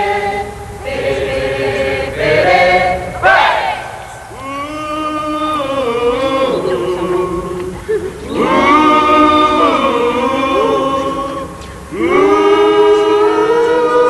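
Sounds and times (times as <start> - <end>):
group singing in chorus: 0.0 - 14.0.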